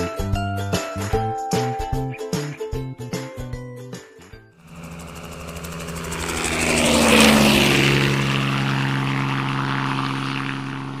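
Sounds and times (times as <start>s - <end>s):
aircraft drone passing over: 4.6s - 11.0s.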